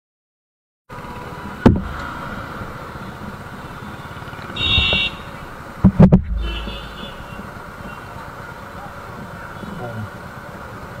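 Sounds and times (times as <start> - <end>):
city traffic noise: 0.9 - 11.0
short vehicle horn beep: 4.6 - 5.3, 6.4 - 8.1
sharp thump: 5.8 - 6.5.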